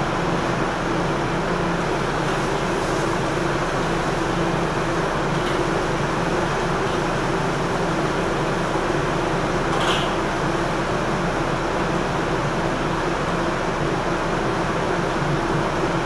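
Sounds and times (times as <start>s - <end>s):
exhaust fan roaring: 0.0s - 16.0s.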